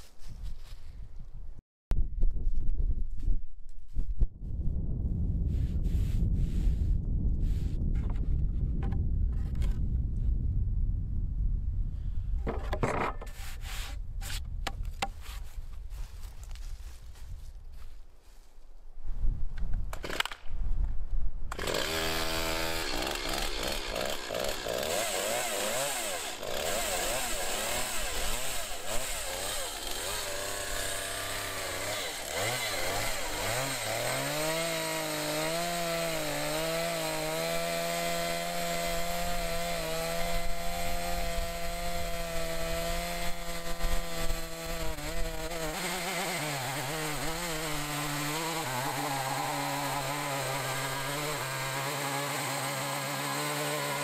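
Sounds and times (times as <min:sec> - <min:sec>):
chainsaw cutting log: 0:19.9 - 0:20.4, 0:21.5 - 0:54.0.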